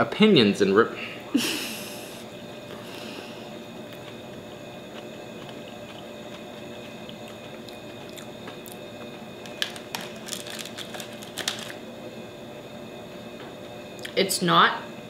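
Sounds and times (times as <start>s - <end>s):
low room hum: 0.0s - 15.0s
paperboard tray crackling: 9.4s - 11.8s.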